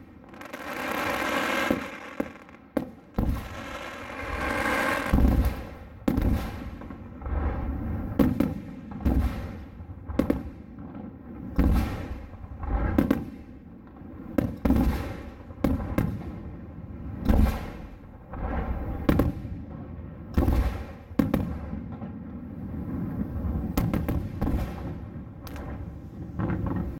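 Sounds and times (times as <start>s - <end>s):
small firework cracks: 0.0s - 6.8s
fireworks bursting: 0.0s - 9.6s.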